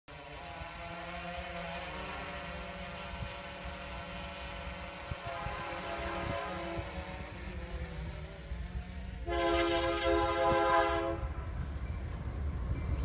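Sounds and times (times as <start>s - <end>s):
motor hum with wavering tones: 0.1s - 10.4s
wind buffeting microphone: 2.4s - 13.0s.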